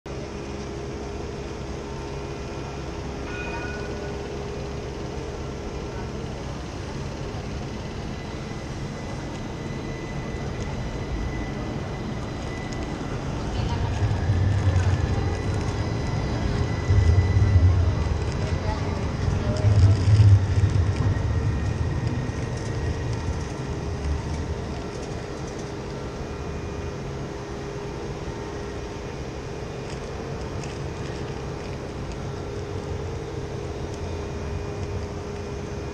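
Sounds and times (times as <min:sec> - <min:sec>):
city square ambience: 0:00.1 - 0:35.9
tram humming: 0:00.1 - 0:35.9
brief high tone: 0:03.2 - 0:04.3.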